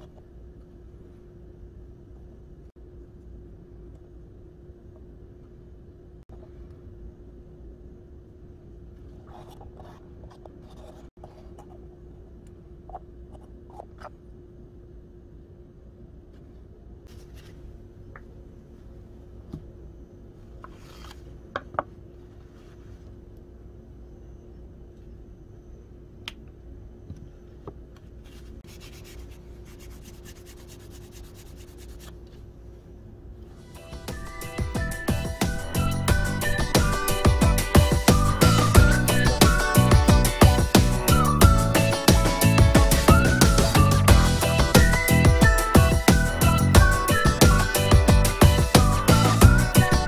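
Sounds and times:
steady low hum: 0.0 - 50.0
tissue rubbing on steel chisel: 28.2 - 32.2.

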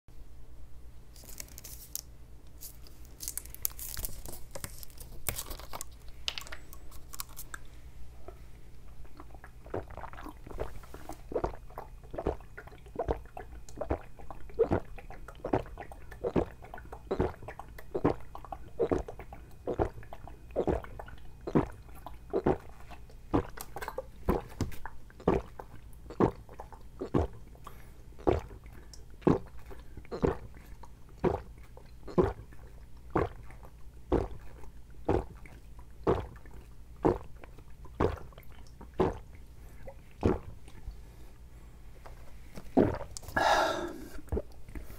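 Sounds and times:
plastic bottle crackling: 2.6 - 7.5
loud gulping swallows: 9.0 - 40.9, 42.7 - 44.7.

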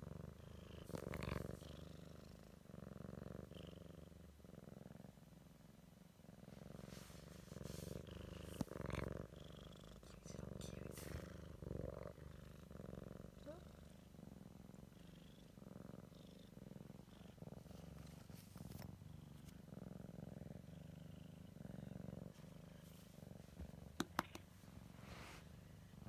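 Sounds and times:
cat purring: 0.0 - 26.0.

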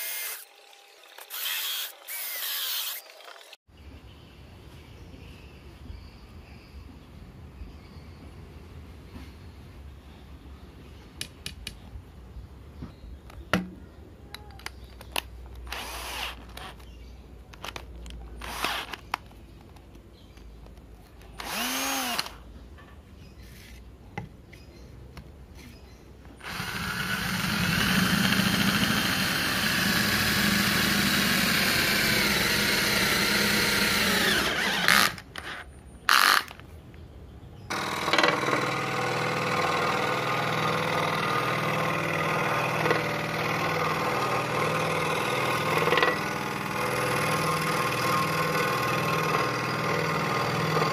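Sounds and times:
electric drill boring into wood: 0.0 - 3.6, 15.7 - 16.8, 18.4 - 19.0, 21.4 - 22.4, 26.4 - 35.5, 36.1 - 36.5, 37.7 - 50.9
scroll saw running: 0.0 - 3.6, 15.7 - 16.8, 18.4 - 19.0, 21.4 - 22.4, 26.4 - 35.2, 37.7 - 50.9.

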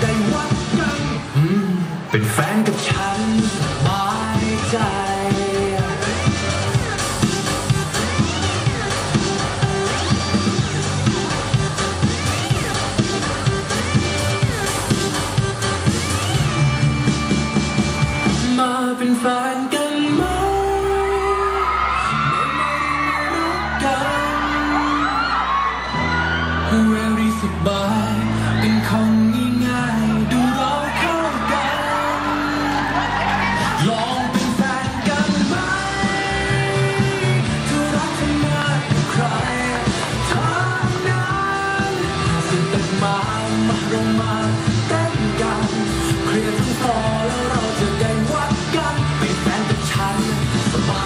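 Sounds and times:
pop song over sound system: 0.0 - 51.0
audience whooping: 20.0 - 51.0.

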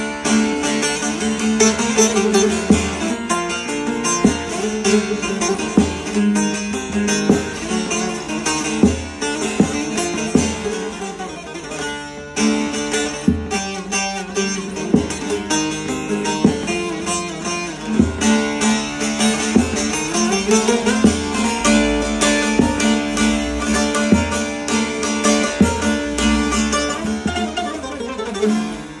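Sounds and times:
hard strummed stroke: 0.0 - 29.0
long-necked lute picked melody: 0.0 - 29.0.

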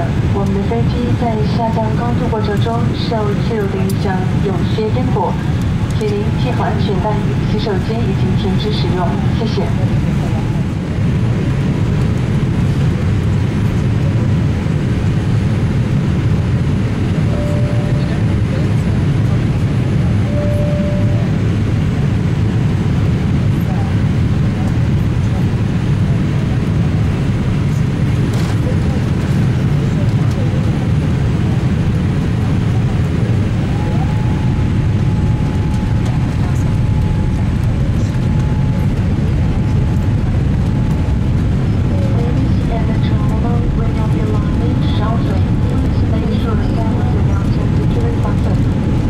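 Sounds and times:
airliner cabin engine roar: 0.0 - 49.0
faint high whine: 17.1 - 18.6, 20.2 - 21.4, 33.3 - 42.7.

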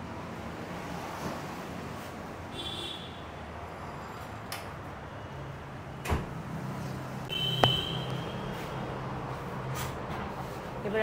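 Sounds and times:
sharp knock: 7.6 - 8.2.

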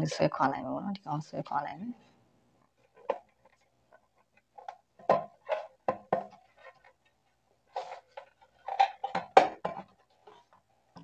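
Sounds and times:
plastic case clicking and creaking: 7.7 - 10.6.

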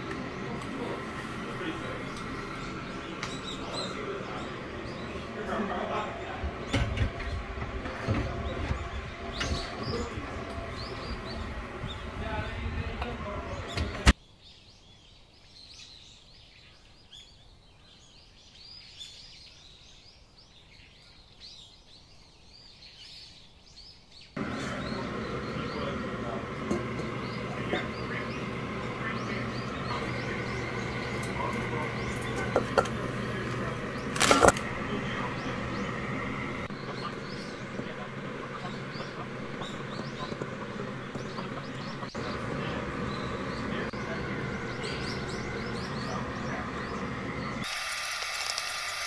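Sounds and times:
steady hum: 0.0 - 14.2, 24.4 - 48.0
small birds chirping: 0.0 - 49.0.

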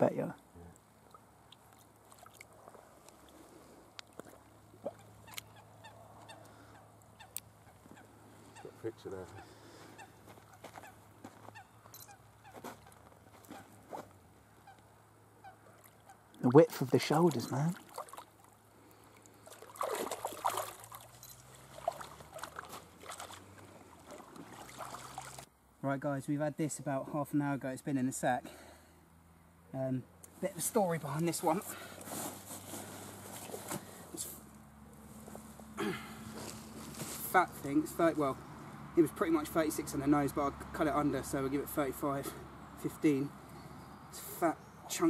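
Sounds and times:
sharp ticks of water: 0.4 - 5.6, 6.2 - 7.6, 17.4 - 25.5
water splashing and dripping: 1.0 - 3.2, 15.7 - 18.6, 19.2 - 25.5
faint bird calls: 4.6 - 16.4.

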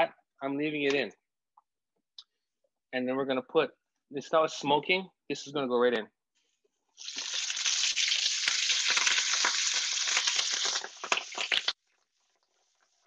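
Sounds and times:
sharp crackles: 7.0 - 11.8
vegetables sizzling in fat: 7.0 - 11.8.

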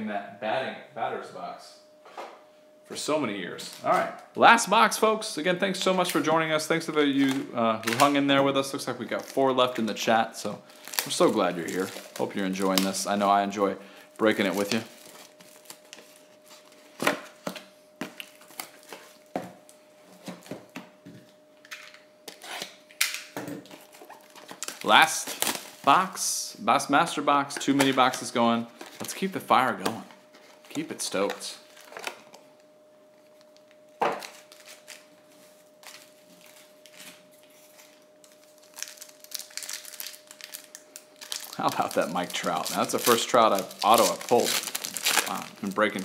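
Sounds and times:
card packs tapping and clacking: 7.2 - 8.2, 10.8 - 13.2, 27.6 - 30.0, 41.2 - 46.0
packaging rustling: 10.6 - 19.4, 23.6 - 26.1, 27.7 - 29.4, 30.2 - 32.6, 33.3 - 46.0.

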